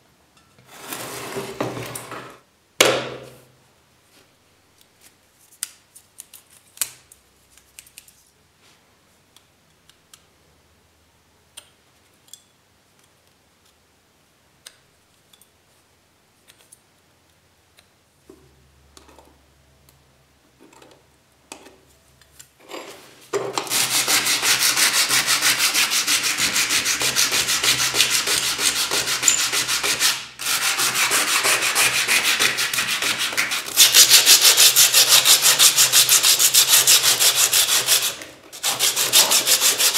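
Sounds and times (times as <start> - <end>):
hand sanding metal: 23.6 - 39.9.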